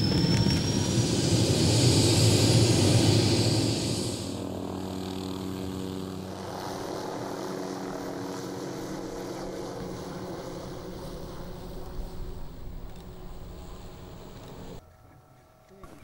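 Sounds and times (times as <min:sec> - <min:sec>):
helicopter rotor and engine drone: 0:00.0 - 0:14.8.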